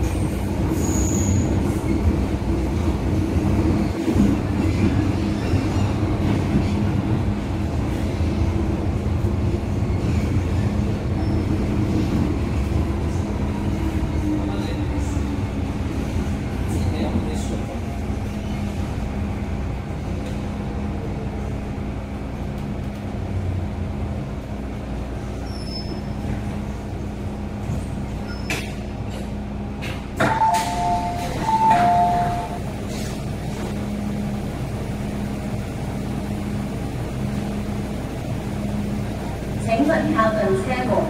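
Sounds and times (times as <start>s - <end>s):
train running hum and rumble: 0.0s - 41.0s
train door chime: 30.2s - 32.6s.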